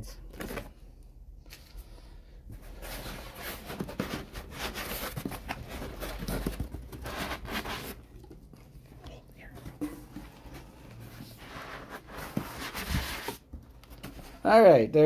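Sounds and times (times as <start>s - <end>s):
foam rubbing and scraping: 11.1s - 13.5s.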